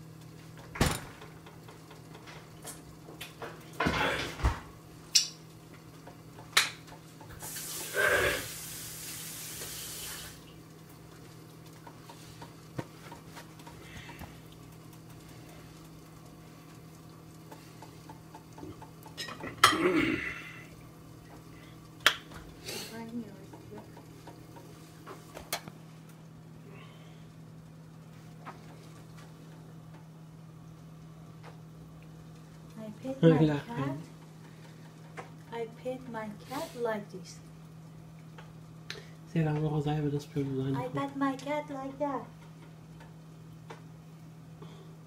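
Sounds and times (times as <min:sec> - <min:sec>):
steady low hum: 0:00.0 - 0:45.0
pots and utensils clanking: 0:00.6 - 0:08.4, 0:18.1 - 0:20.3
hiss: 0:07.4 - 0:10.5.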